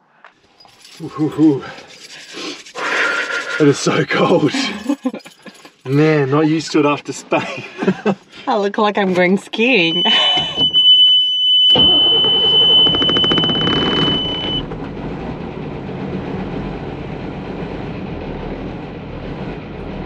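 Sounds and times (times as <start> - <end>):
high warning tone: 9.6 - 14.7
starter motor cranking: 11.8 - 14.6
diesel engine idling: 11.8 - 20.0.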